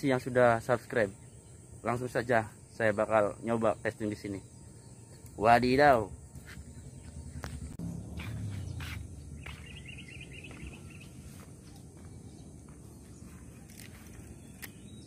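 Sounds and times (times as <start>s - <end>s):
insect hum: 0.0s - 15.0s
bird twittering: 0.9s - 15.0s.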